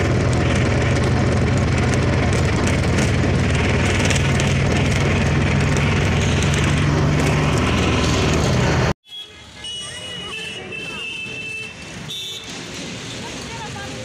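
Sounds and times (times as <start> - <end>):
vehicle engine running: 0.0 - 9.0
road and wind noise: 0.0 - 14.0
street sound: 0.0 - 14.0.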